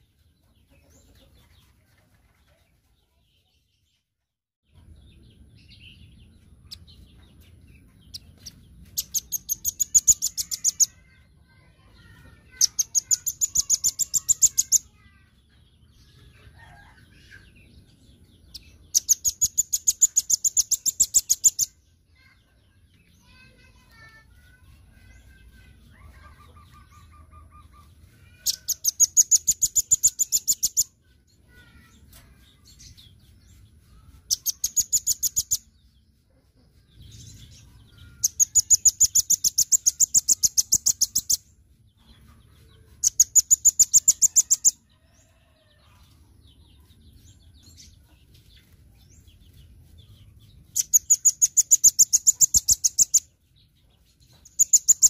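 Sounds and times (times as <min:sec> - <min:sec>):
nuthatch trilling: 0:08.1 - 0:11.1, 0:12.5 - 0:14.9, 0:50.7 - 0:53.2.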